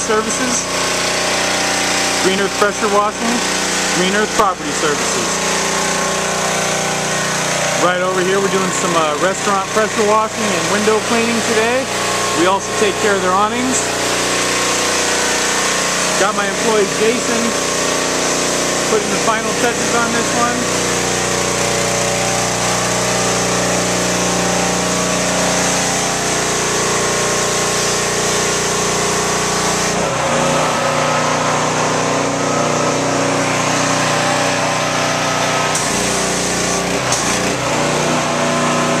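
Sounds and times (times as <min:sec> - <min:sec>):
pressure washer engine running: 0:00.0 - 0:39.0
water spraying on concrete: 0:00.0 - 0:39.0.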